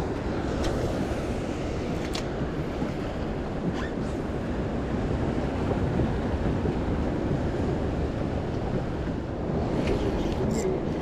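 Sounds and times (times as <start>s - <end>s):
sea waves washing: 0.0s - 11.0s
wind on microphone: 0.0s - 11.0s.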